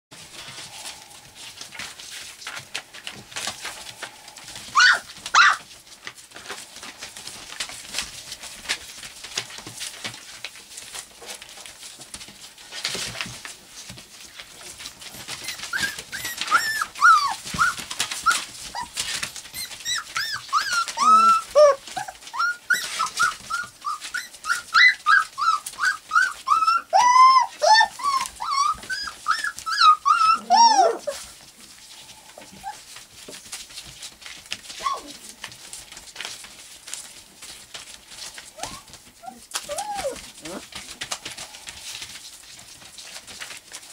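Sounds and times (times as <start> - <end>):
newspaper rustling under paws: 0.1 - 43.9
puppies whining and yipping: 0.3 - 5.8, 14.6 - 42.2
puppies yelping loudly: 3.3 - 5.8, 15.1 - 31.3, 34.7 - 35.2, 38.4 - 41.7.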